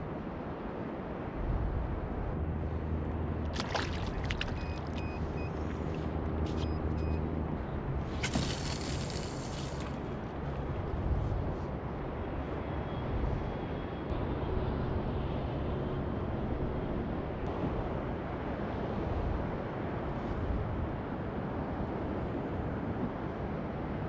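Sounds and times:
wind rumble on microphone: 0.0s - 24.0s
water moving against a hull: 3.5s - 6.1s.

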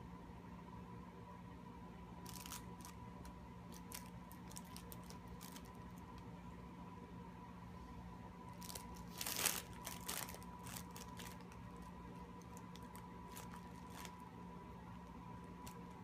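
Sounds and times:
fabric mat rustling: 8.6s - 11.6s.

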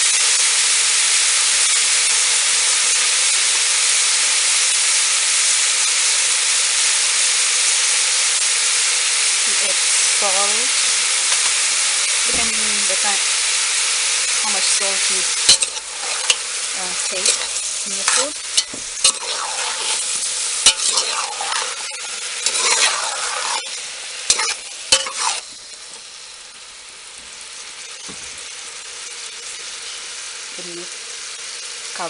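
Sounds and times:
eggplant sizzling in pot: 0.0s - 32.0s
metal spoon clanking and scraping pot: 11.3s - 11.6s, 14.2s - 26.0s.

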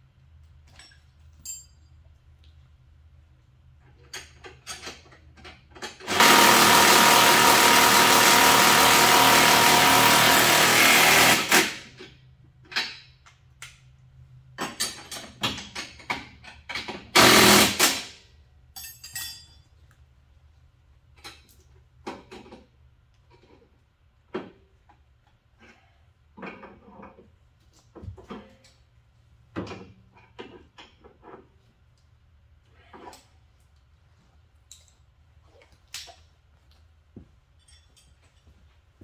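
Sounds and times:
tools and parts clicking: 0.4s - 2.6s, 3.8s - 6.1s, 11.9s - 13.9s, 14.5s - 17.2s, 18.6s - 20.0s, 21.1s - 25.8s, 34.6s - 35.2s, 37.5s - 38.5s
power tool running: 6.0s - 11.9s, 17.2s - 18.1s.

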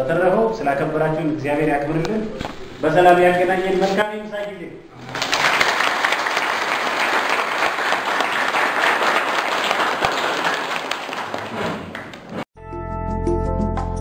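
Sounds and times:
crowd applauding: 5.0s - 12.5s.

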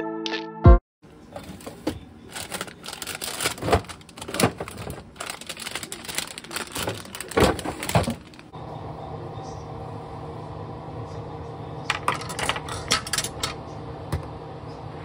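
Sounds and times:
plastic containers clicking and knocking: 1.4s - 8.5s
plastic packages crinkling: 1.5s - 8.5s.

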